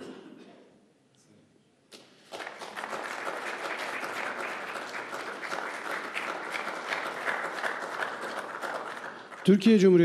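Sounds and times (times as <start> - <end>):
audience applauding: 2.2 - 9.7.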